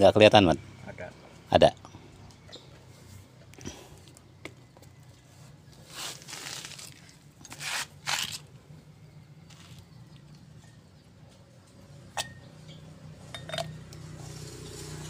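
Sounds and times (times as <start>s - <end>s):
parts scraping on cardboard: 5.8s - 8.5s.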